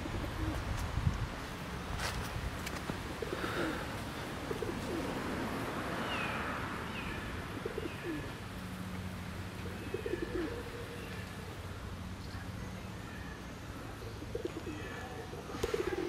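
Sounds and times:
pigeons cooing: 0:00.0 - 0:00.7, 0:03.1 - 0:06.5, 0:07.4 - 0:08.4, 0:09.5 - 0:11.4, 0:14.0 - 0:16.0
small birds chirping: 0:06.0 - 0:16.0.

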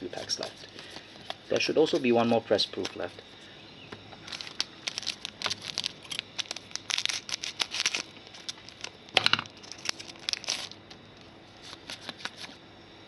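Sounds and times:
foil pack crinkling and tearing: 0:04.2 - 0:11.0, 0:11.6 - 0:12.6.

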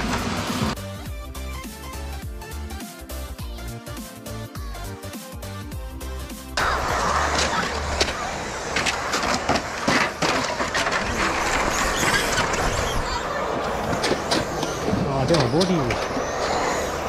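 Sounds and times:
electric toy cars hissing: 0:05.4 - 0:17.0
faint voices: 0:06.6 - 0:17.0.

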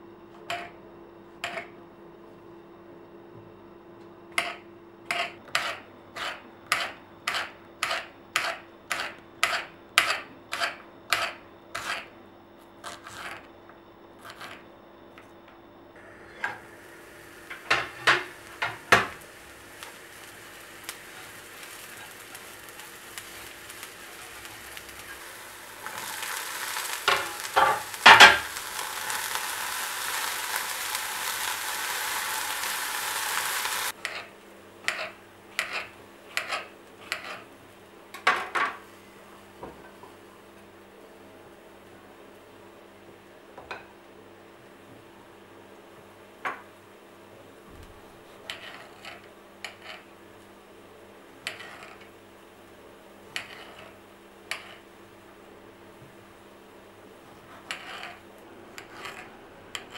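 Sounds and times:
loud steady sizzle: 0:16.0 - 0:38.2
mushrooms frying with soft hiss: 0:16.0 - 0:59.9
knocks in a pan: 0:27.1 - 0:28.5.

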